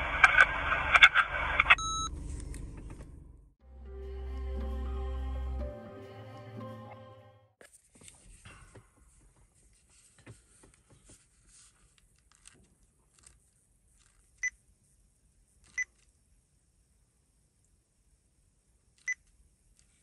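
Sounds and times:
voice recorder beeps: 0:01.7 - 0:02.1
handling rustle: 0:07.6 - 0:14.4.

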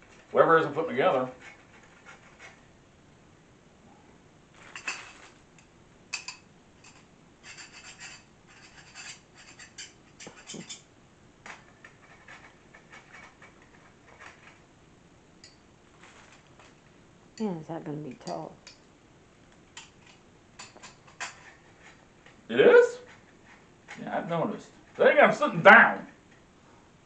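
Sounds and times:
metal parts clinking and scraping: 0:04.6 - 0:05.4.

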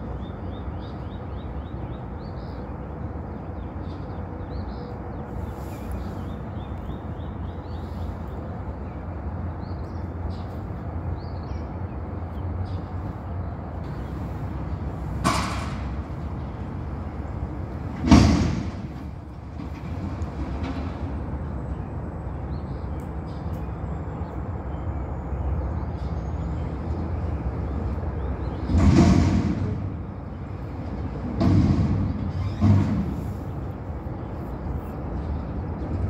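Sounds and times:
metallic bangs: 0:15.1 - 0:21.1, 0:28.5 - 0:33.6.

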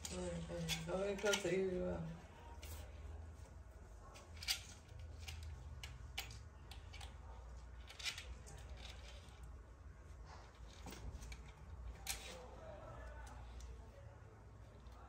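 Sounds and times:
claws clicking on tiles: 0:04.3 - 0:09.5.

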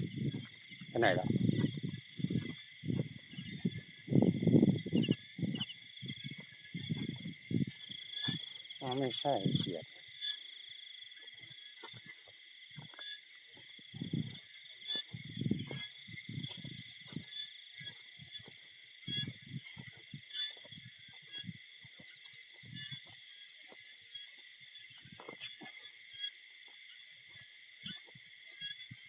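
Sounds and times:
soft low thumps: 0:00.0 - 0:08.5, 0:13.9 - 0:23.8
crickets and insects trilling: 0:00.0 - 0:29.0.

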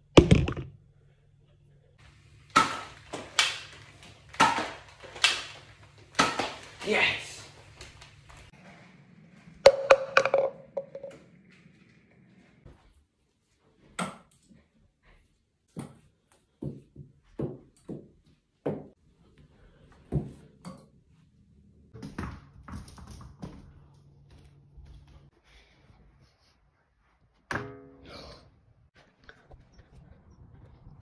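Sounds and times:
small objects knocking and bouncing: 0:00.2 - 0:00.8, 0:09.6 - 0:11.3.

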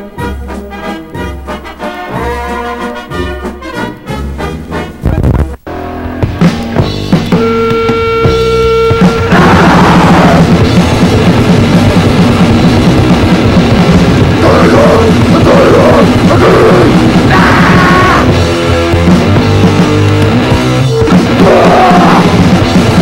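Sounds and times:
distorted guitar: 0:04.6 - 0:23.0
fast drumming: 0:06.2 - 0:23.0
harsh vocals: 0:09.2 - 0:10.7, 0:14.2 - 0:18.4, 0:21.2 - 0:22.6.

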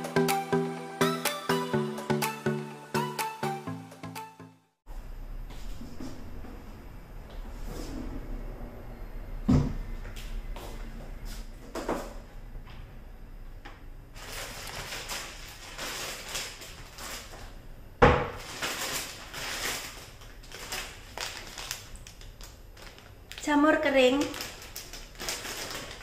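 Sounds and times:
plastic bag rustling and crinkling: 0:14.1 - 0:17.6, 0:18.2 - 0:26.0.

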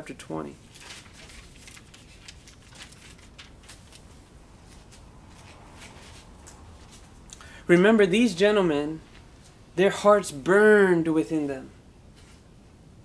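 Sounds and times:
paper pages rustling: 0:00.6 - 0:07.2.

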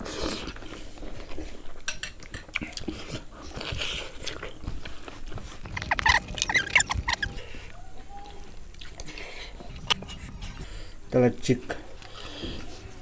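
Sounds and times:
chewing: 0:02.2 - 0:11.0.

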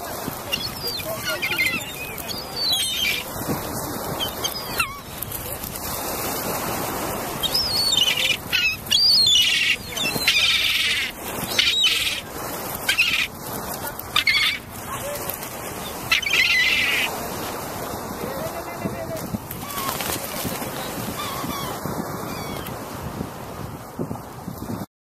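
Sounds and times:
birds chirping and whistling: 0:00.5 - 0:03.3, 0:04.2 - 0:05.2, 0:07.4 - 0:12.2.

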